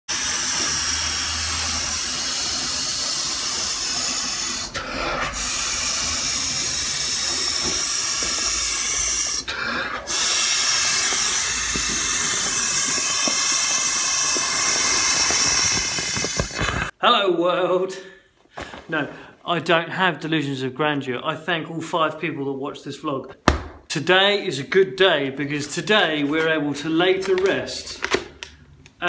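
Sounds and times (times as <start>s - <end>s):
person blowing into valve: 0.0s - 17.0s.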